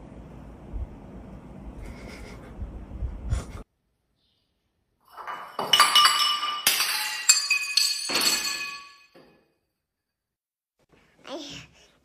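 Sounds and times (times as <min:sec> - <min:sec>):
hard objects clinking: 0:05.1 - 0:09.4.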